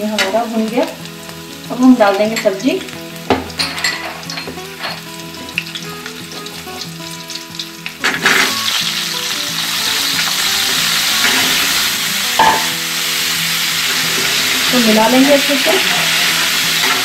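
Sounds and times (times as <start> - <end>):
food sizzling in oil: 0.0 - 17.0
hot oil crackling: 0.0 - 17.0.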